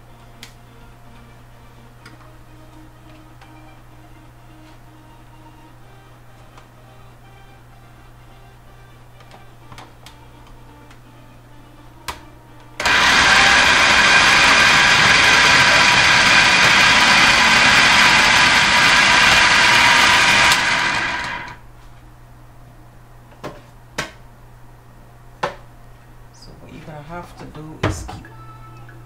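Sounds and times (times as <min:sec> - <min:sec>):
food processor grinding: 0:12.8 - 0:21.6.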